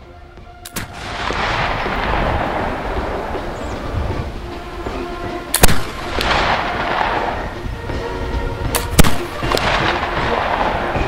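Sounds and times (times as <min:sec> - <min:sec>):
faint background music: 0:00.0 - 0:11.0
rifle shots: 0:00.7 - 0:03.4, 0:05.5 - 0:07.5, 0:08.8 - 0:11.0.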